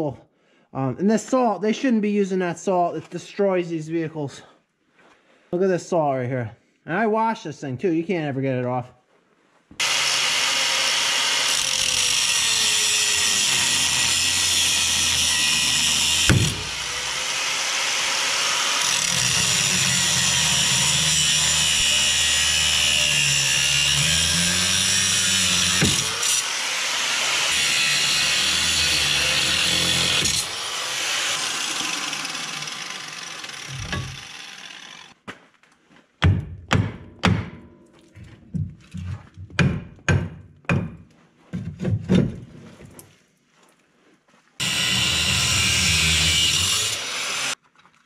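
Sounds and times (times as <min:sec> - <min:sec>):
angle grinder cutting steel: 0:09.8 - 0:35.2, 0:44.6 - 0:47.6.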